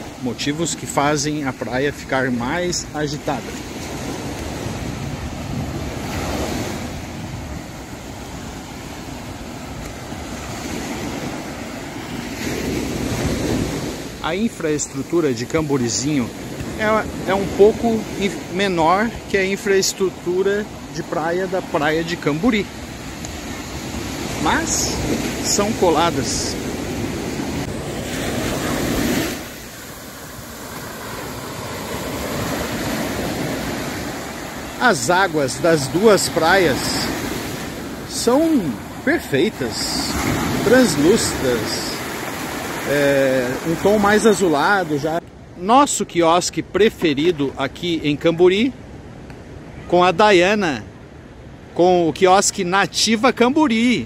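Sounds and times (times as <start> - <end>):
ocean surf breaking on beach: 0.0 - 54.0
wind buffeting microphone: 3.8 - 14.1.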